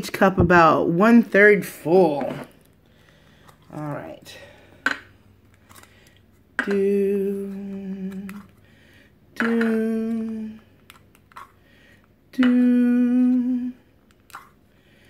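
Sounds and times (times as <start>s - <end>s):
plastic cups clicking: 4.8s - 6.9s, 9.4s - 11.6s
person humming: 6.6s - 8.6s, 9.3s - 10.8s, 12.3s - 13.9s.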